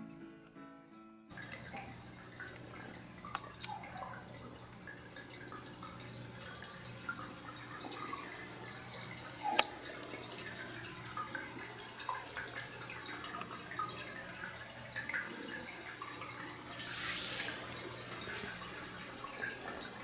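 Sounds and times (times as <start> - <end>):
water fountain trickling: 1.3 - 20.0
brief hiss: 16.8 - 18.8.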